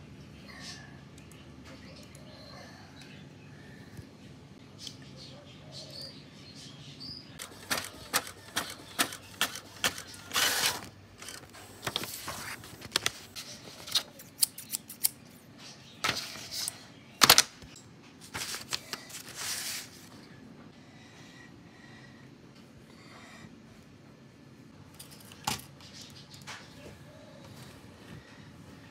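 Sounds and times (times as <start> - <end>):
paper rustling: 7.4 - 14.3, 18.2 - 20.2.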